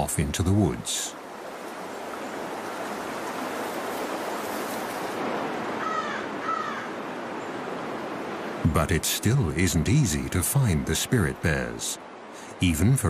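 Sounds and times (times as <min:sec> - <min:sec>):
creek water rushing: 0:00.0 - 0:13.0
bird calling harshly: 0:05.8 - 0:07.0.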